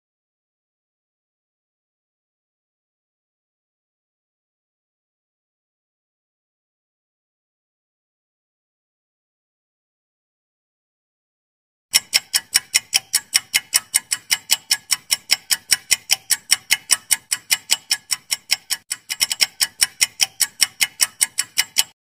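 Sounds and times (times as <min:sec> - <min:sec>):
clock ticking: 0:11.9 - 0:22.0.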